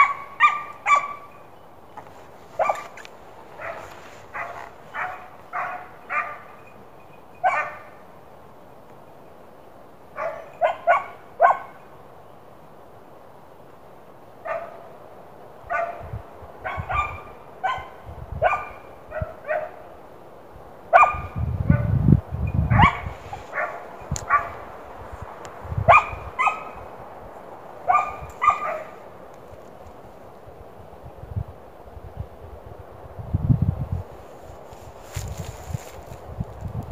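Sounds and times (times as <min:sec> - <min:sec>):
hound baying barks: 0:00.0 - 0:01.4, 0:02.5 - 0:06.7, 0:07.4 - 0:08.0, 0:10.2 - 0:11.8, 0:14.4 - 0:14.8, 0:15.7 - 0:16.0, 0:16.6 - 0:19.8, 0:20.9 - 0:21.4, 0:22.7 - 0:24.7, 0:25.9 - 0:26.9, 0:27.8 - 0:29.0.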